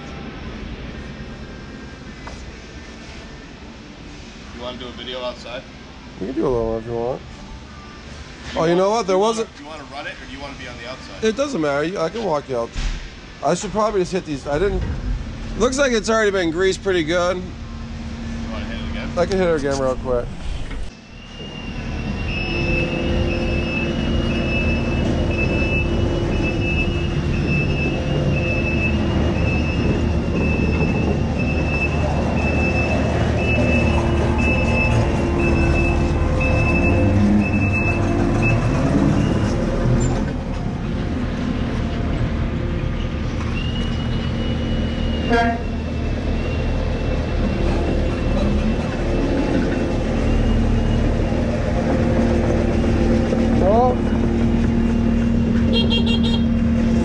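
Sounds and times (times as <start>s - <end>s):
diesel engine running: 13.1s - 57.0s
high warning beeps: 21.0s - 39.6s.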